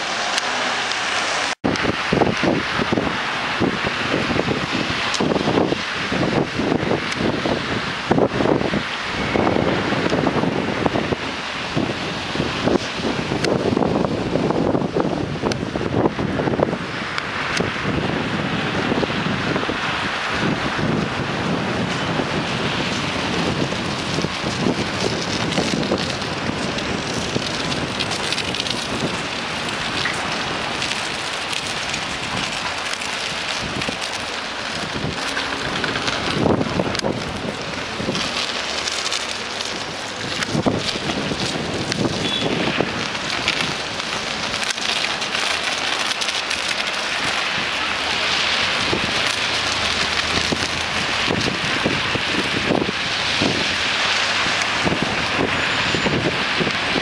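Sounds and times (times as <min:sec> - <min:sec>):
tyres hissing on wet road: 0:00.0 - 0:57.0
sharp cracks: 0:22.8 - 0:55.4.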